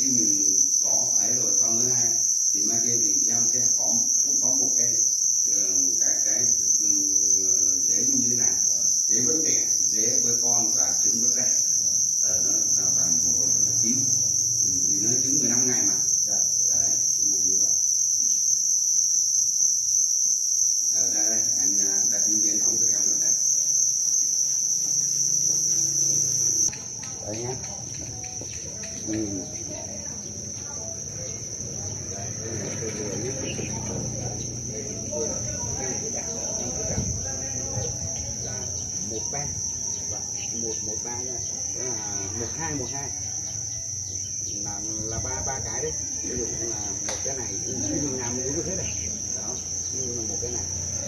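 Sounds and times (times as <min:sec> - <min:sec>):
crickets chirping: 0:00.0 - 0:51.0.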